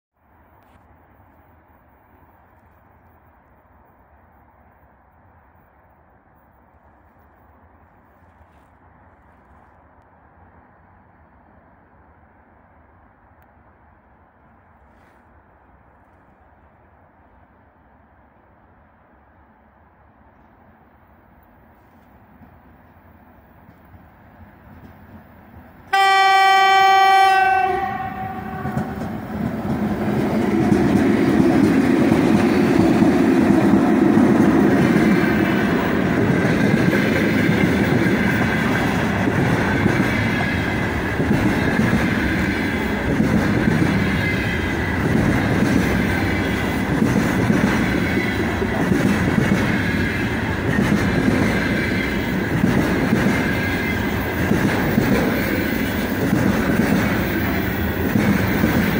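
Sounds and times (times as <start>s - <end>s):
train wheels rumbling on rail: 0.4s - 58.9s
clickety-clack over rail joints: 21.4s - 26.0s, 27.6s - 58.9s
locomotive horn: 25.9s - 29.1s.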